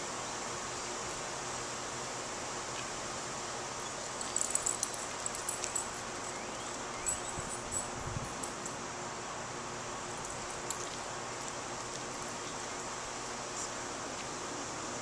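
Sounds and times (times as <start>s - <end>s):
outdoor hiss: 0.0s - 15.0s
dog leash and collar clinking: 4.0s - 8.8s, 10.0s - 12.7s.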